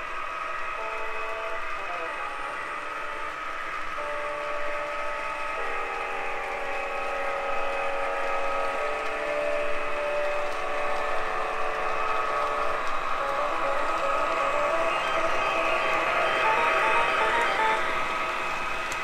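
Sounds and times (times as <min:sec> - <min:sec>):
model train running on track: 0:00.0 - 0:19.0.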